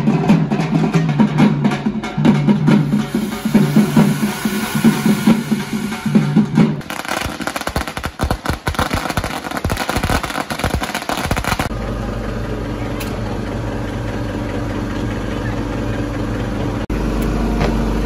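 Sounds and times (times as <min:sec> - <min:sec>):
drumming: 0:00.0 - 0:11.7
firecrackers crackling and popping: 0:06.8 - 0:11.7.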